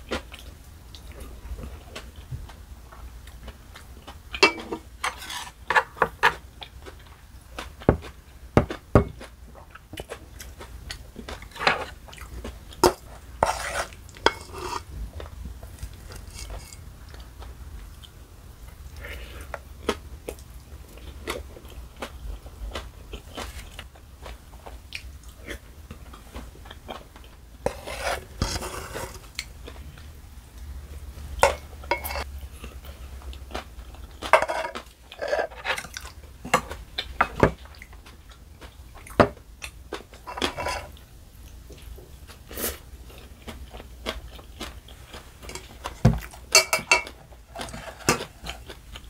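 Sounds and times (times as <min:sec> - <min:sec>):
utensils scraping metal bowl: 0:04.4 - 0:05.9, 0:13.4 - 0:14.9, 0:16.1 - 0:16.8, 0:27.6 - 0:29.2, 0:31.5 - 0:32.3.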